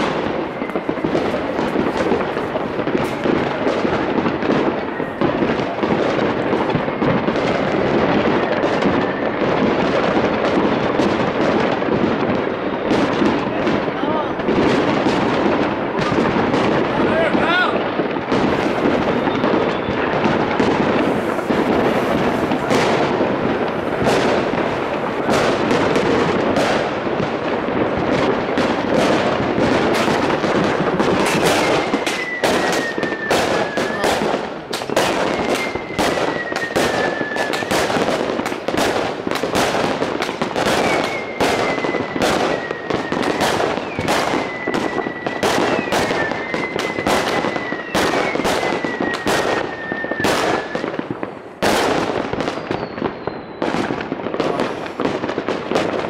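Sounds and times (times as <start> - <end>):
fireworks crackling and banging: 0.0 - 56.0
firework whistles sliding down: 31.2 - 34.1, 34.8 - 37.7, 40.7 - 50.9, 52.5 - 53.8.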